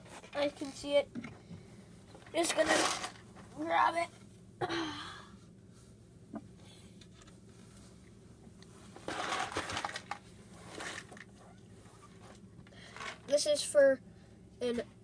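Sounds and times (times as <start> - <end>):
rustling and scraping: 0.0 - 1.4, 2.1 - 4.3, 7.1 - 13.3.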